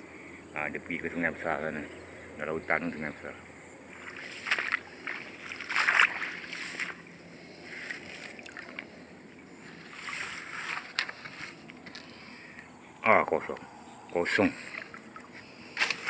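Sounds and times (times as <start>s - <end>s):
high insect trill: 0.0s - 16.0s
shallow water splashing: 3.9s - 12.5s, 14.4s - 16.0s.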